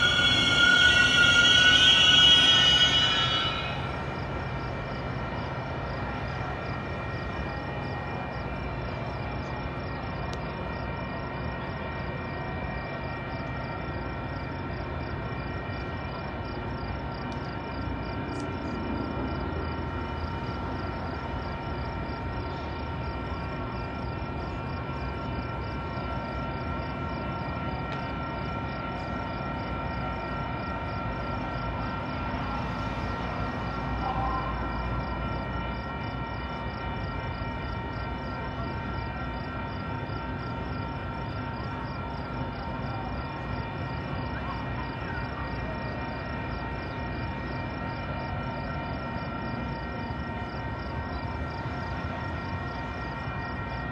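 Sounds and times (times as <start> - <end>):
faint high pulsing: 0.0 - 4.5
steady whining tones: 0.0 - 53.9
train low rumble: 0.0 - 53.9.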